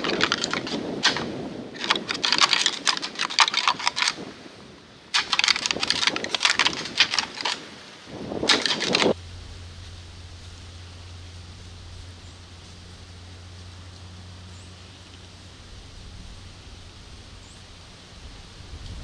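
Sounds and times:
antlers clashing and clattering: 0:00.0 - 0:04.3, 0:05.1 - 0:07.7, 0:08.4 - 0:09.2.

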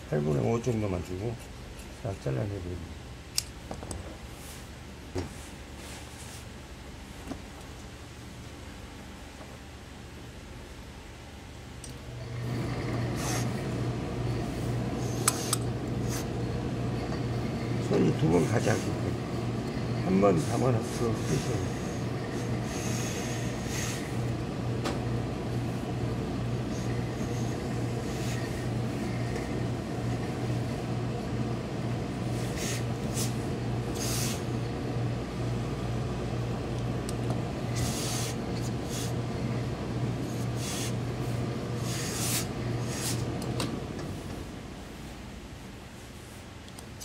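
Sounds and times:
low machine hum: 0:00.0 - 0:47.0
hissing and rustling of cloth: 0:04.3 - 0:07.3.

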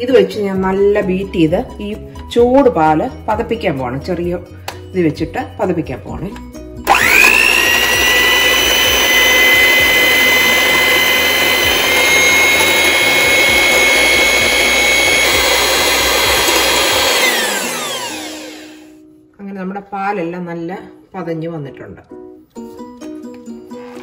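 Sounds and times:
electric hand mixer whining: 0:06.9 - 0:19.0.

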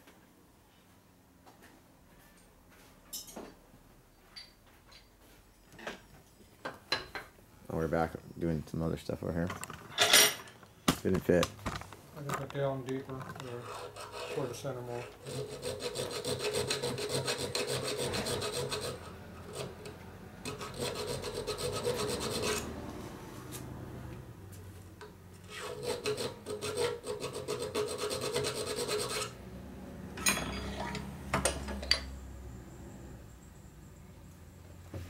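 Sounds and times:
metal being filed by hand: 0:13.4 - 0:22.8, 0:25.4 - 0:29.4.

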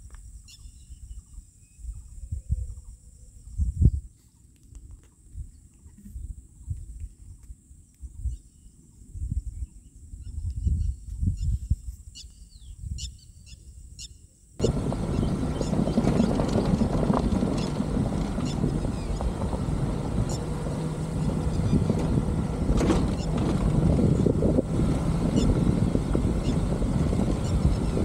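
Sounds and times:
low rumble: 0:14.6 - 0:28.0
off-road vehicle driving: 0:14.6 - 0:28.0
wind buffeting microphone: 0:14.6 - 0:28.0.

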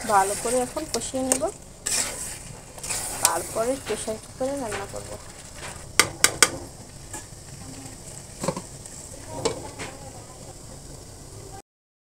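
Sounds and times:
meat sizzling in a metal pan: 0:00.0 - 0:11.6
metal spatula clacking on pan: 0:06.0 - 0:06.6.

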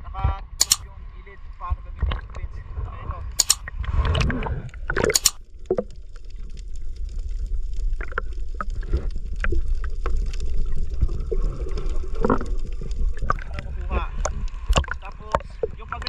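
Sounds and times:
muffled underwater rumble: 0:00.0 - 0:16.0
bubbles clicking and crackling: 0:03.4 - 0:16.0.

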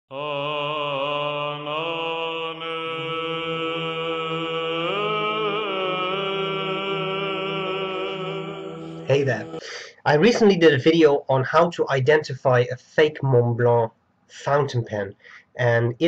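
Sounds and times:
steady low drone: 0:00.2 - 0:09.6.

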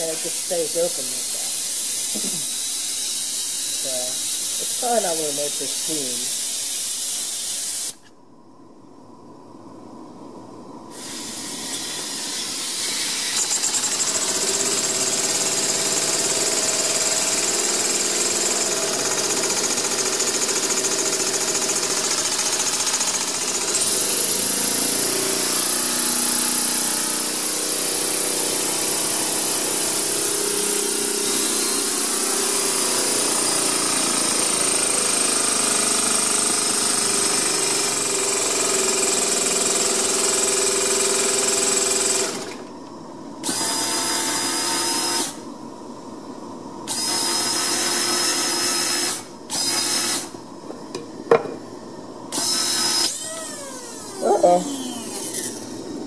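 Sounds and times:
small steam engine running: 0:00.0 - 0:07.8, 0:11.0 - 0:42.6.

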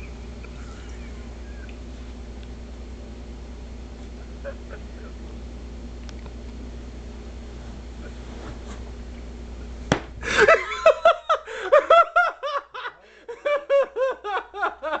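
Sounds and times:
loud laughing: 0:04.2 - 0:05.2, 0:10.2 - 0:15.0
sharp smack: 0:09.9 - 0:10.2.

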